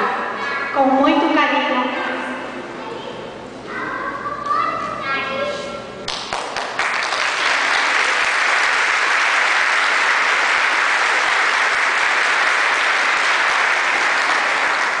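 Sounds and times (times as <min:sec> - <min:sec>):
crowd clapping: 0:06.0 - 0:15.0.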